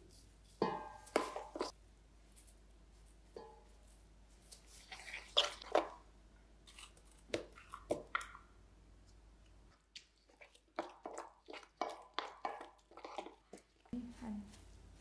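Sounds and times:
wet squishing and crunching: 4.5 - 8.5, 9.8 - 14.0.

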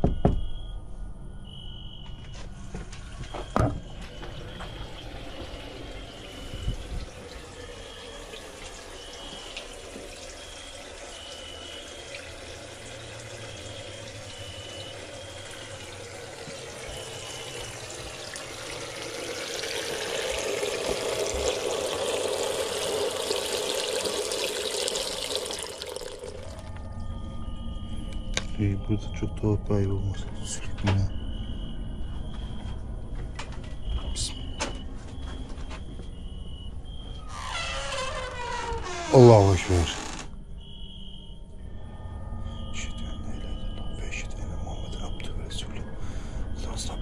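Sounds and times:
faint high beep: 0.0 - 2.4, 10.4 - 12.3, 12.9 - 18.1, 26.4 - 38.0, 40.6 - 47.0
water running: 3.0 - 26.9, 37.3 - 40.2
small thump: 3.3 - 3.9.

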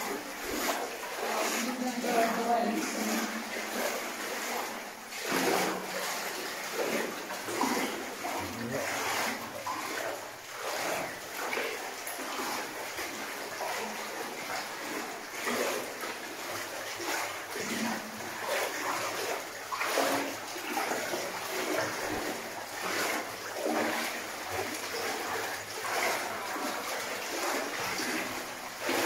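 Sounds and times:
footsteps splashing through water: 0.0 - 29.0.

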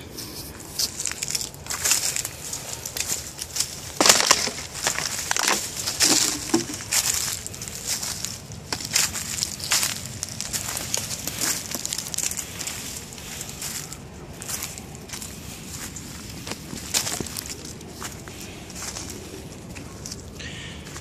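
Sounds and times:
footsteps crunching through dry leaves: 0.0 - 21.0.

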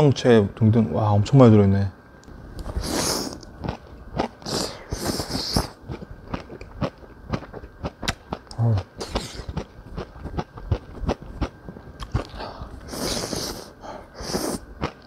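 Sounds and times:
slurping noodles: 4.4 - 5.8, 12.8 - 14.6.

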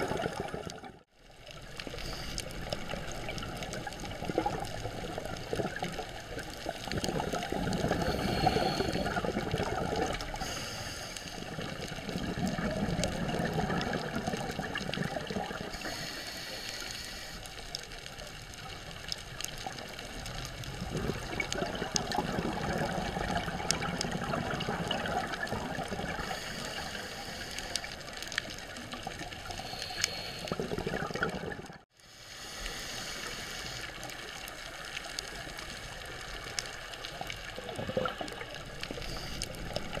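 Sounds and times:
exhaled bubbles underwater: 0.0 - 16.0, 18.6 - 31.8, 35.1 - 40.0
regulator breathing underwater: 1.8 - 2.9, 7.5 - 12.7, 15.3 - 17.6, 25.8 - 28.1, 29.4 - 34.1, 38.8 - 40.0.

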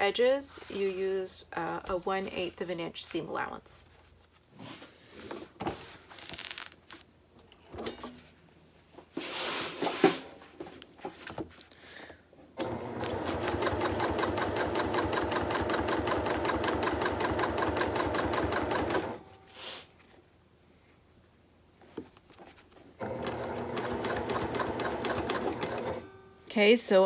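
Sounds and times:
fabric rustling: 3.9 - 7.1
sewing machine stitching: 12.6 - 19.2, 23.0 - 26.0.

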